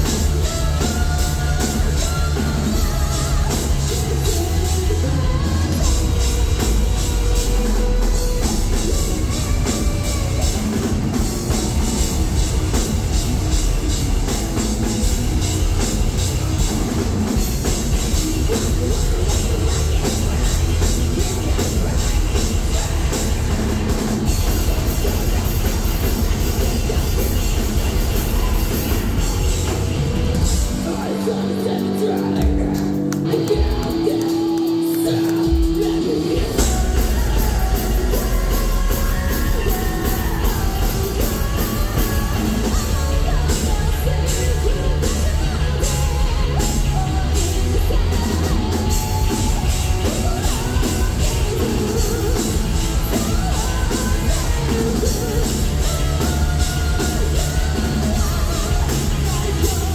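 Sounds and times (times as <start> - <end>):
distorted guitar and bass: 0.0 - 59.9
heavy metal band playing: 0.0 - 59.9
person singing: 0.0 - 59.9
pounding drum kit: 0.0 - 59.9.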